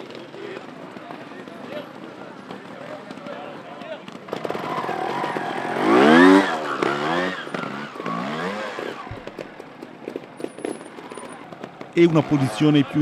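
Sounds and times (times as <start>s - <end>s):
motorcycle engine revving: 4.3s - 13.0s.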